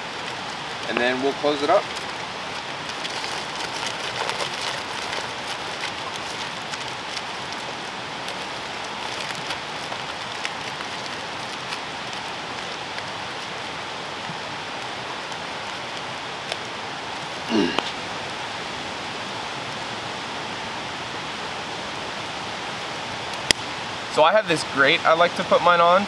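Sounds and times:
aluminium foil crinkling: 0.0 - 17.5
steady background hiss: 0.0 - 26.0.

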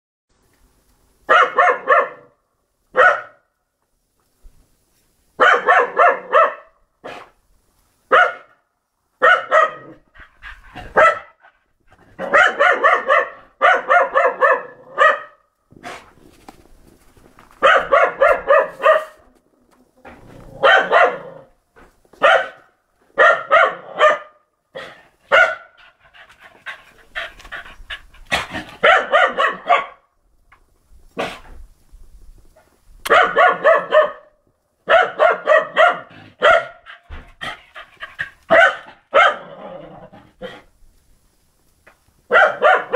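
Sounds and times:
dog barking: 1.3 - 3.5, 5.4 - 7.3, 8.1 - 8.6, 9.2 - 10.0, 10.8 - 11.4, 12.2 - 15.4, 17.6 - 19.3, 20.6 - 21.5, 22.2 - 25.8, 28.4 - 30.1, 33.1 - 37.1, 38.5 - 39.6, 42.3 - 42.9.

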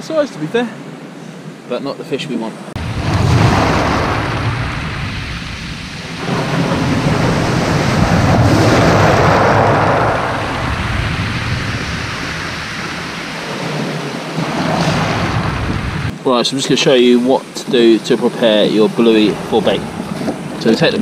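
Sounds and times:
waves breaking on shingle: 2.8 - 16.1.

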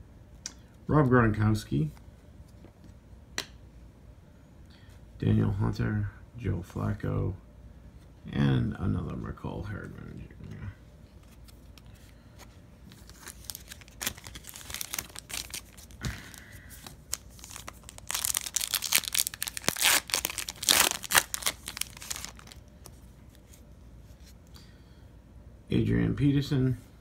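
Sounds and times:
foil wrapper tearing and crinkling: 13.0 - 22.6.

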